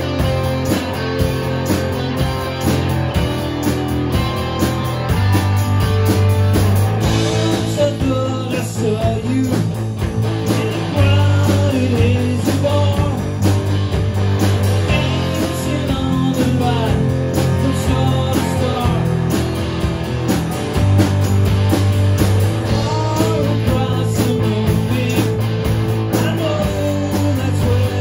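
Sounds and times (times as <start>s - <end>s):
electric guitar bending notes: 0.0s - 9.0s
bass notes: 0.0s - 28.0s
steady drum beat: 0.0s - 28.0s.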